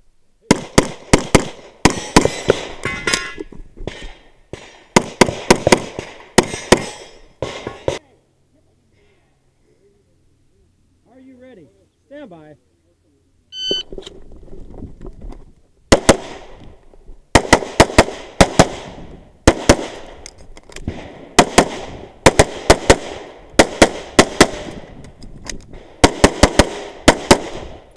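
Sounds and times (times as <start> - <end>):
shot timer beep: 13.5 - 13.9
pistol firing rapidly: 17.3 - 18.9, 19.5 - 20.0, 21.4 - 24.7, 26.0 - 27.7.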